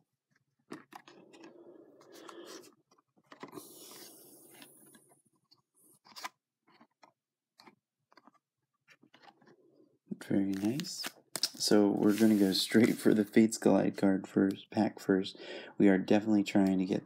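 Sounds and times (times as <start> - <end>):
cards rustling scrape: 0.8 - 13.4.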